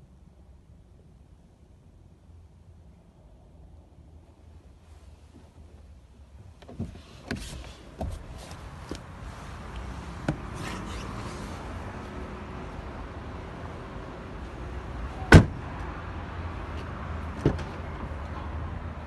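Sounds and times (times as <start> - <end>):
car door slamming: 6.6 - 8.5, 15.2 - 15.7, 17.4 - 17.8
car door latch clicking: 15.3 - 15.6.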